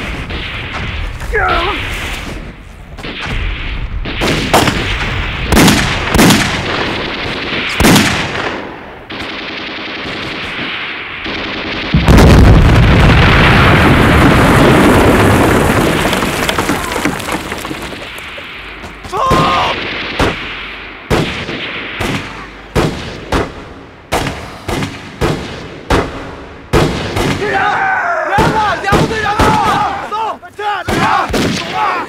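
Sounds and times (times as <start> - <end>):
rifle shots: 3.0 - 14.8, 17.9 - 27.4
rapid machine-gun fire: 4.1 - 14.9.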